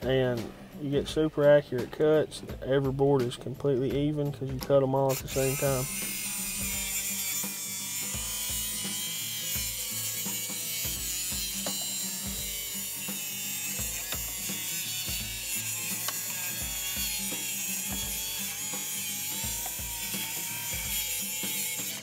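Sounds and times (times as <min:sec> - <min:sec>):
background music with a beat: 0:00.0 - 0:22.0
circular saw cutting boards: 0:05.0 - 0:22.0.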